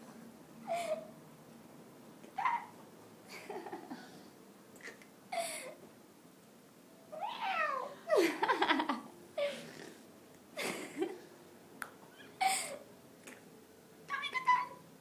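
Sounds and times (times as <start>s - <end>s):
cat meowing and yowling: 7.2s - 8.0s.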